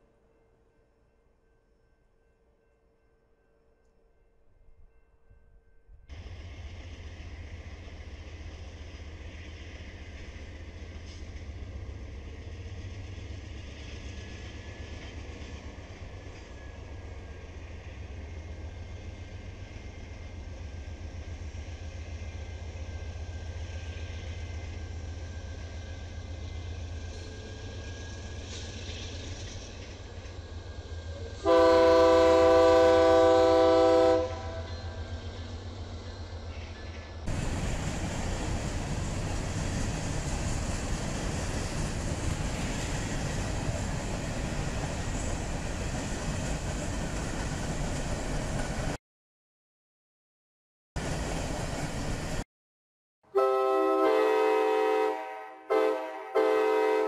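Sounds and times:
diesel locomotive rumble: 0:29.8 - 0:48.9
locomotive horn blast: 0:31.4 - 0:35.0, 0:53.3 - 0:57.0.

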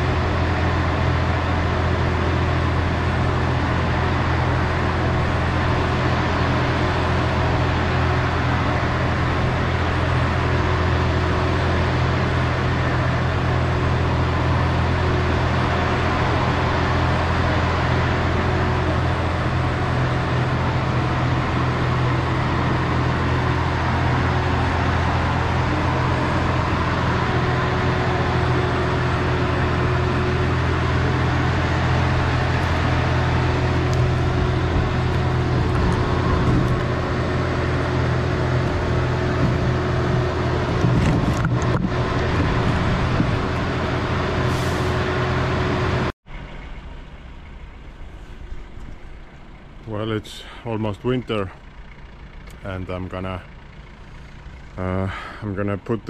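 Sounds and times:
trolleybus mechanical hum: 0:00.0 - 0:56.0.

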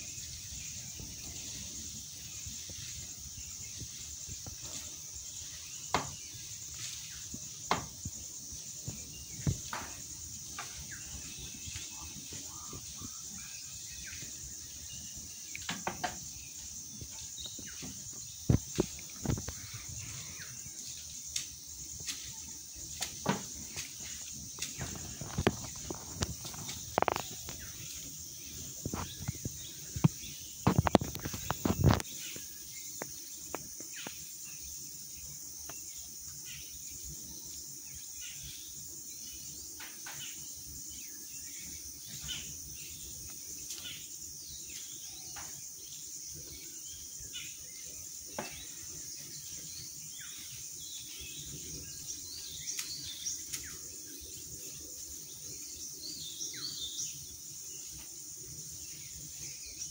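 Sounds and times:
bird chirps: 0:00.0 - 0:37.2
insects droning: 0:00.0 - 0:59.9
sharp cracks and knocks: 0:05.9 - 0:06.2, 0:07.7 - 0:08.1, 0:15.6 - 0:16.2, 0:22.9 - 0:24.0.

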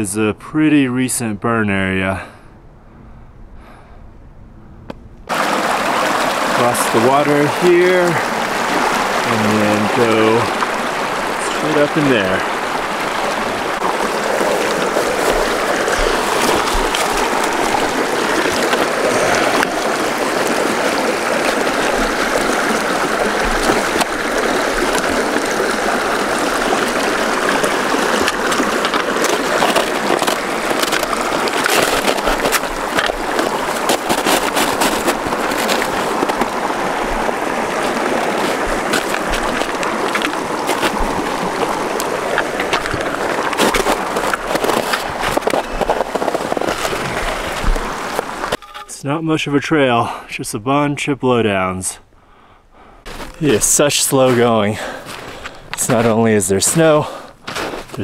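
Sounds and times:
creek rushing: 0:05.3 - 0:48.9, 0:53.0 - 0:58.0
footsteps and trekking pole clicks: 0:14.4 - 0:19.7, 0:28.1 - 0:36.5, 0:37.8 - 0:48.9, 0:55.0 - 0:56.2.

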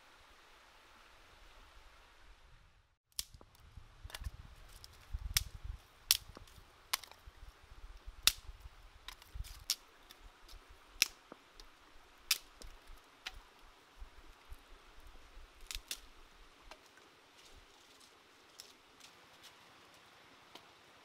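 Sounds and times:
wooden sticks cracking: 0:03.1 - 0:07.2, 0:08.2 - 0:13.6, 0:15.6 - 0:19.6
twigs rustling: 0:03.1 - 0:20.7.

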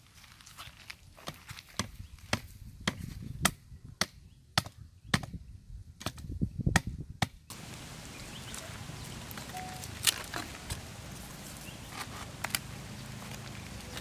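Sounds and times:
machete chopping sapling: 0:01.2 - 0:05.4, 0:06.0 - 0:07.5
faint steady hiss: 0:07.5 - 0:14.0
leaves rustling: 0:07.5 - 0:14.0.

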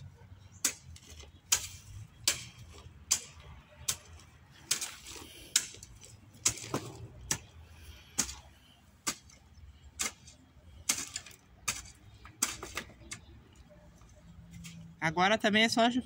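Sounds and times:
hoe chopping stony soil: 0:00.6 - 0:13.3.

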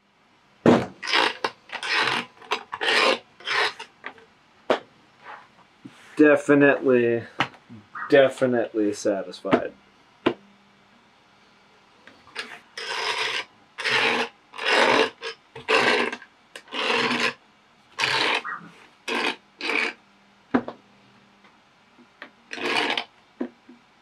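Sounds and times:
metal gooseneck arms scraping: 0:01.0 - 0:04.0, 0:12.2 - 0:17.4, 0:18.0 - 0:20.0, 0:22.5 - 0:23.1.

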